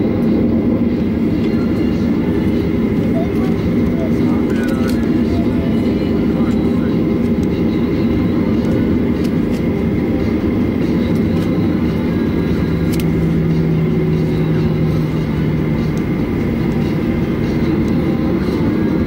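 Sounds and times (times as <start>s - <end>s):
jet engines idling rumble: 0.0s - 19.0s
low hum: 0.0s - 19.0s.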